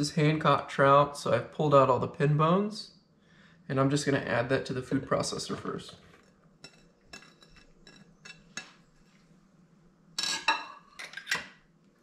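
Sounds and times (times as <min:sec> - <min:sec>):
glass dish clinking on bowl: 0:10.2 - 0:11.5
metal measuring cups clinking: 0:10.2 - 0:11.5.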